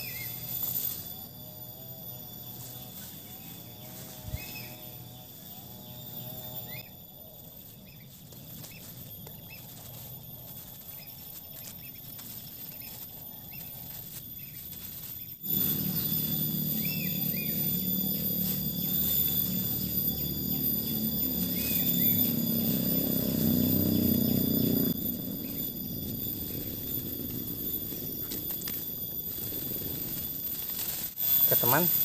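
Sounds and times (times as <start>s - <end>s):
bird chirps: 0.0s - 32.0s
high-pitched insect drone: 0.0s - 32.0s
loud low hum: 15.4s - 32.0s.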